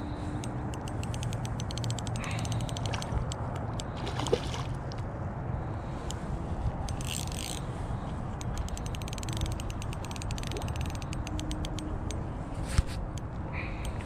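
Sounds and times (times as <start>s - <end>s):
wind rumble on microphone: 0.0s - 14.0s
fishing reel clicking: 0.4s - 3.9s, 6.9s - 7.7s, 8.3s - 12.2s
water splash: 4.0s - 4.8s.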